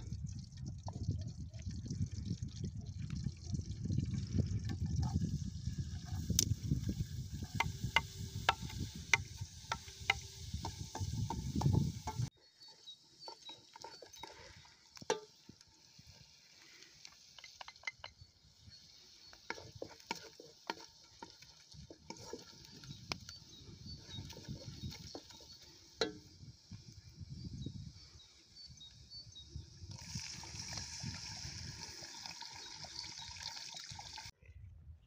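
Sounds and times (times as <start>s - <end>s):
wooden spoon stirring in metal pot: 6.0s - 26.9s.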